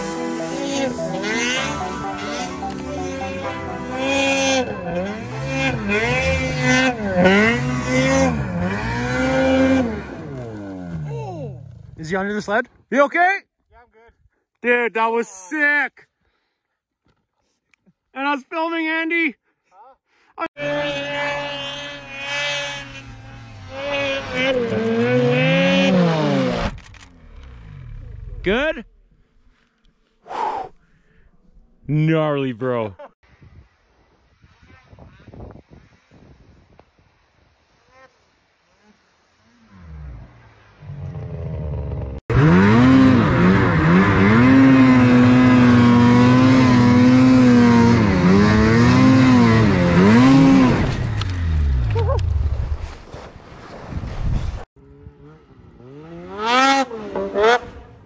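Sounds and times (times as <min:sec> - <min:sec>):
snowmobile engine revving: 0:00.0 - 0:12.6, 0:20.6 - 0:28.8, 0:37.4 - 0:52.6, 0:54.9 - 0:58.0.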